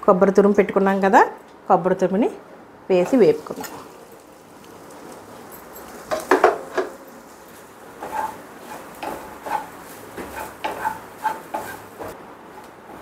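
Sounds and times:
wooden spatula scraping a pan: 7.3 - 12.2.

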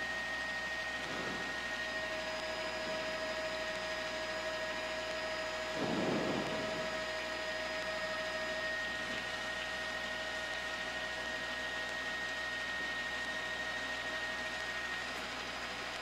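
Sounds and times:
radio carrier hiss with tones: 5.7 - 7.2
muffled noise swell: 5.8 - 7.2.

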